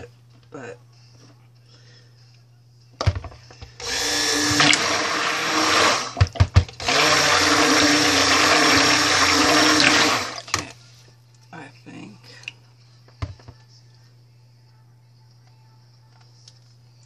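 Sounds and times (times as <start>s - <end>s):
stick blender running: 3.8s - 10.7s.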